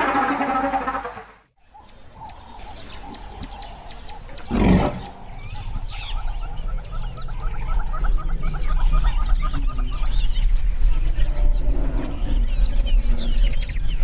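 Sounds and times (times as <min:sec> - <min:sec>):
birds chirping: 0:00.0 - 0:14.0
elephant roaring: 0:04.4 - 0:05.3
low rumble: 0:05.0 - 0:14.0.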